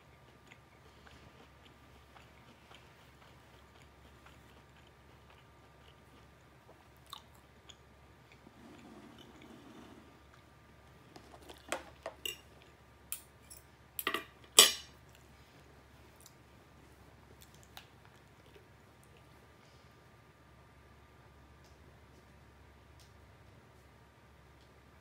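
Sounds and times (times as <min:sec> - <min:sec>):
cutlery clinking on a plate: 0:13.2 - 0:14.9.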